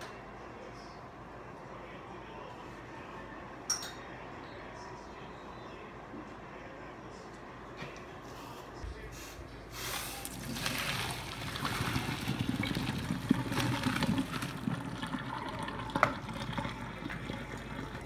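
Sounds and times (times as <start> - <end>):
water pouring into metal colander: 10.2 - 18.0.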